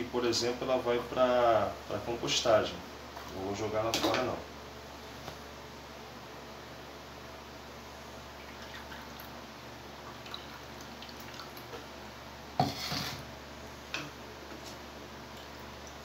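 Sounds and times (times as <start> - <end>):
juice dripping into a glass: 8.4 - 9.4, 10.0 - 11.8.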